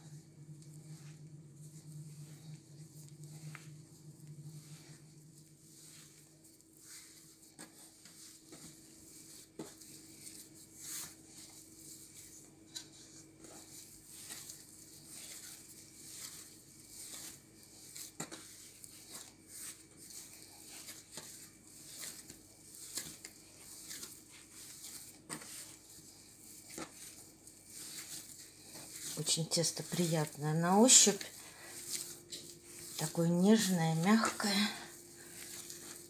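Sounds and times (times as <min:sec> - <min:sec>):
hands kneading dough: 0:00.0 - 0:36.0.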